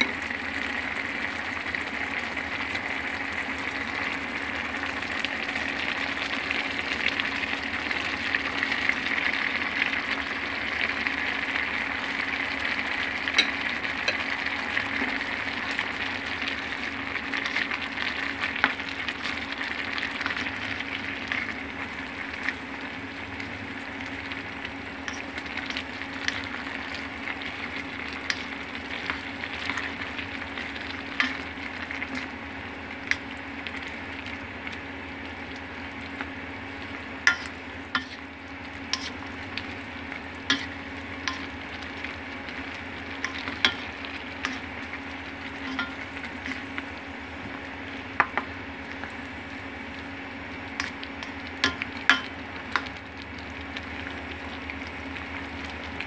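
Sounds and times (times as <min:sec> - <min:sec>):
food sizzling in a frying pan: 0:00.0 - 0:56.0
utensil clicking against pan: 0:37.3 - 0:38.2, 0:50.8 - 0:52.9.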